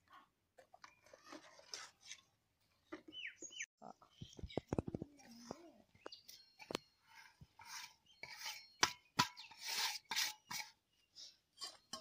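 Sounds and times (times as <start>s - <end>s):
scraping food off metal plate: 7.0s - 10.8s.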